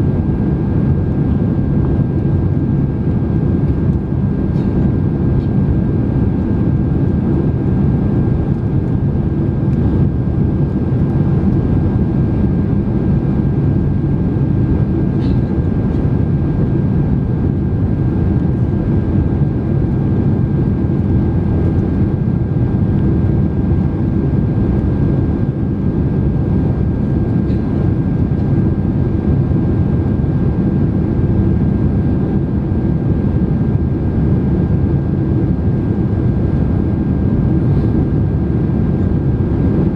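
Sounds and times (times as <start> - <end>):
airplane engines and airflow rush: 0.0 - 39.9.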